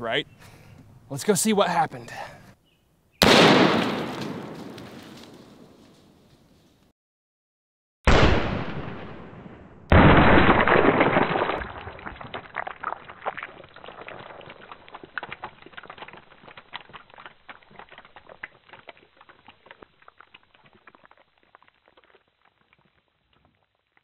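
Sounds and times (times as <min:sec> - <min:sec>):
rifle shot: 0:03.2 - 0:05.8, 0:08.1 - 0:11.3
fragments landing and pattering: 0:10.5 - 0:19.0.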